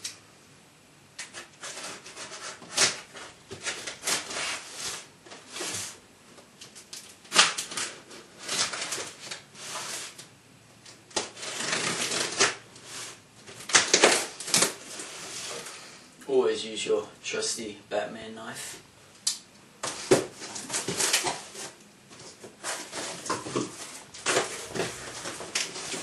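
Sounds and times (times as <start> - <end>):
tape cracking: 10.1 - 12.6, 13.4 - 15.1
cardboard box scraping and tearing: 11.2 - 15.7, 20.0 - 26.0.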